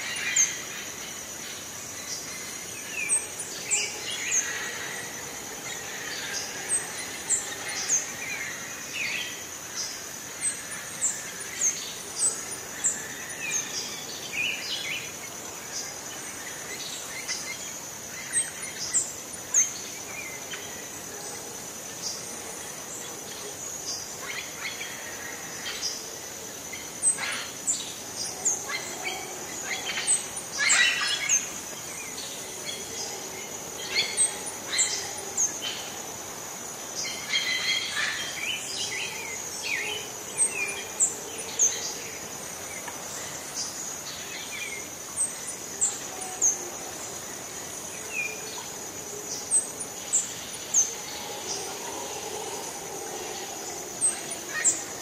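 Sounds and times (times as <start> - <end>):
birds calling and chirping: 26.8 - 36.3.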